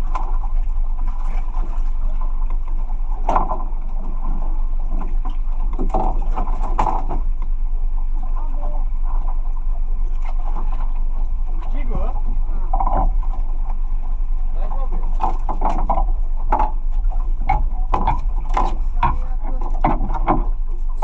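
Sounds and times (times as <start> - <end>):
low rumble aboard boat: 0.0 - 21.0
knocks and clatters: 17.4 - 20.6.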